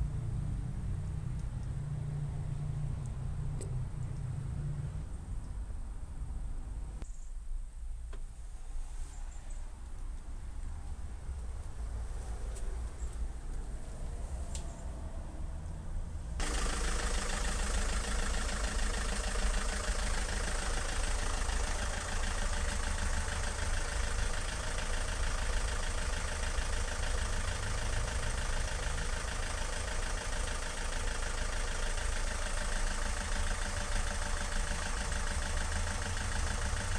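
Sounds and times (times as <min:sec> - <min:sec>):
diesel engine idling: 0:16.2 - 0:36.9.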